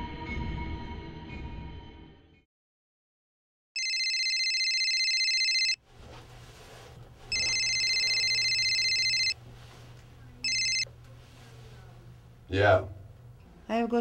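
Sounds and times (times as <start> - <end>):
mobile phone ringing: 3.8 - 5.8, 7.3 - 9.4, 10.4 - 10.9.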